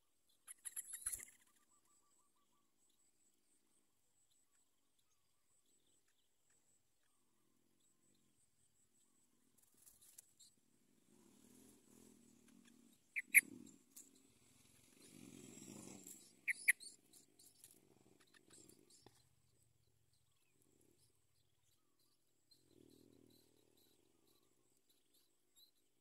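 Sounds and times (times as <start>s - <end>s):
bird chirps: 0.3s - 3.6s, 11.3s - 26.0s.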